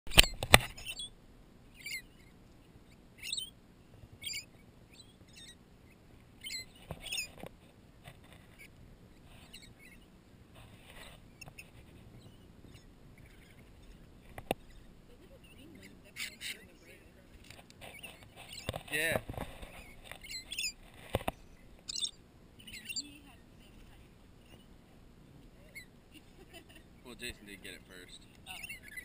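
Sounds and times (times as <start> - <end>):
lorikeets screeching: 0.2 - 1.1, 1.7 - 3.6, 4.2 - 7.4, 8.6 - 10.1, 11.3 - 13.8, 14.6 - 17.1, 17.8 - 18.8, 19.7 - 20.8, 21.4 - 23.4, 27.0 - 29.0.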